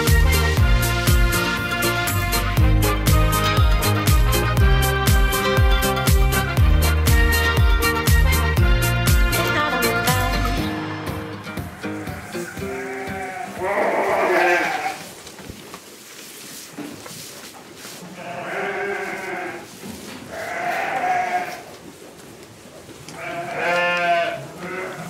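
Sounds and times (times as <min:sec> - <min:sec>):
sheep bleating: 0:11.4 - 0:15.1, 0:18.2 - 0:19.7, 0:20.3 - 0:21.7, 0:23.2 - 0:25.0.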